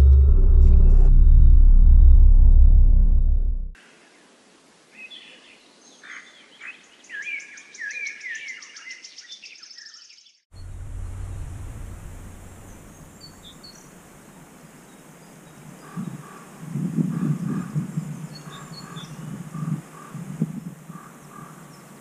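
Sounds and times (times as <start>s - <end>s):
low rumble: 0.0s - 3.8s, 10.5s - 14.2s
songbird singing: 4.0s - 22.0s
faint bird calls: 11.7s - 22.0s.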